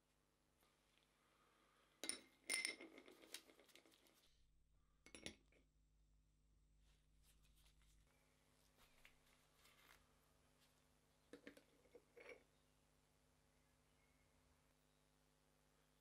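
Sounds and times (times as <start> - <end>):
steel pin clinking in glass jar: 2.0 - 3.1.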